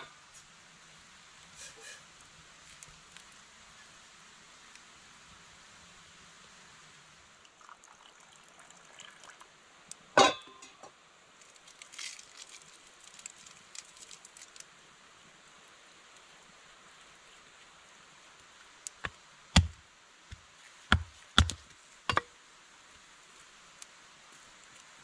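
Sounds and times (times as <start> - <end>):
fire crackles: 0.0 - 25.0.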